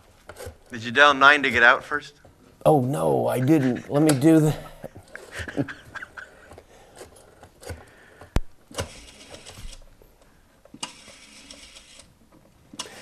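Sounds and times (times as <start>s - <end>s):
telephone dial rattling: 8.7s - 9.8s, 10.8s - 12.1s.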